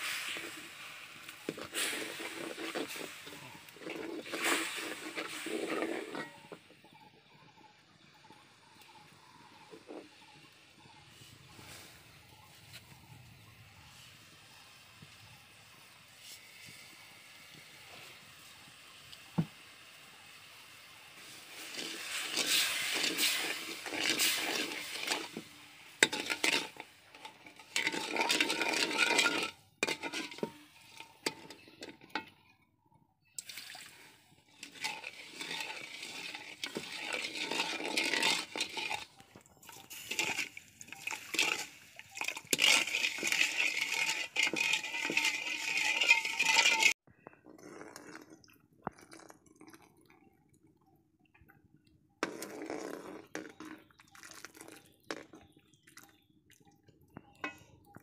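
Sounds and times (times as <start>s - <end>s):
metal spoon scraping a wok: 0.0s - 7.0s, 21.2s - 32.3s, 33.4s - 47.0s.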